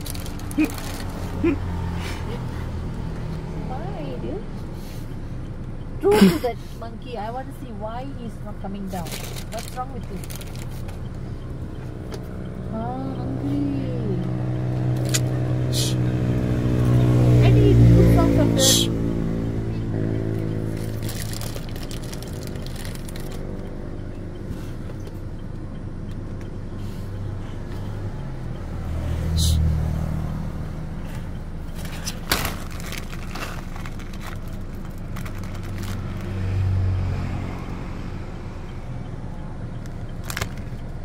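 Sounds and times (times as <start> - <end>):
traffic engine hum: 0.0 - 41.0.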